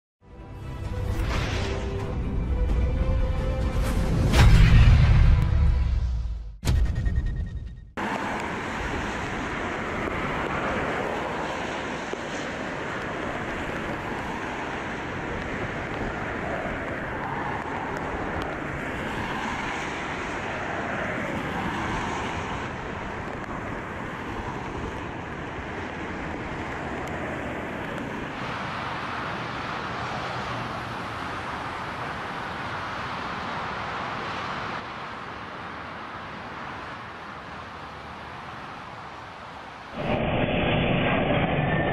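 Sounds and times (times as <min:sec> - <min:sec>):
jet engines rushing: 0:08.0 - 0:35.6, 0:37.8 - 0:41.9.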